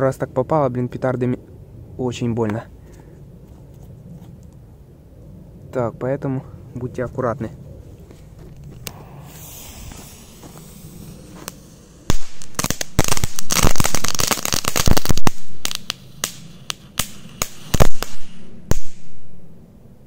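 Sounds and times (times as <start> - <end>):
crackling pops: 8.6 - 19.2
firecracker hissing: 8.7 - 19.3.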